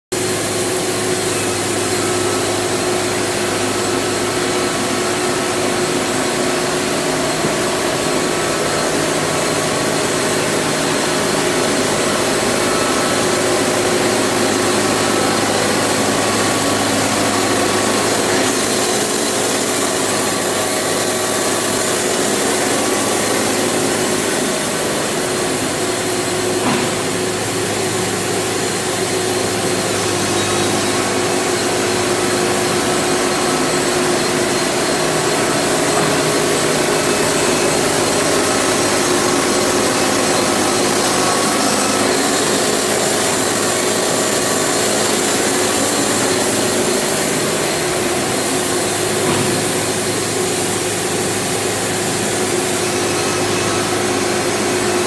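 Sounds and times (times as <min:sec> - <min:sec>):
band sawmill sawing wood: 0:28.8 - 0:55.0.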